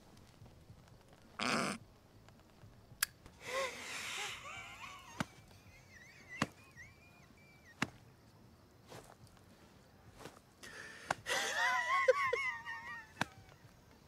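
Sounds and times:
strained throat squeaks: 0:01.4 - 0:01.8.

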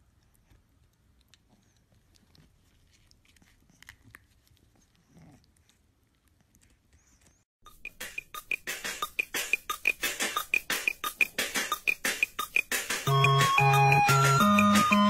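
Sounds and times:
puppy teeth gnawing chew bone: 0:00.0 - 0:07.3.

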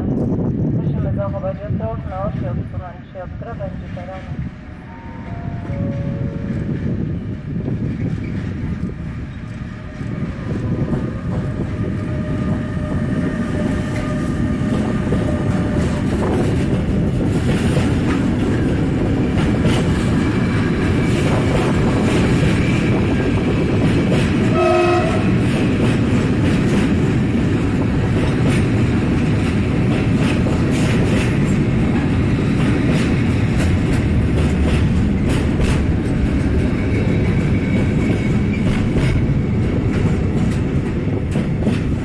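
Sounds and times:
electric locomotive rumble: 0:00.0 - 0:42.0
wheels clattering on rail: 0:05.2 - 0:42.0
train horn blast: 0:24.5 - 0:25.4.

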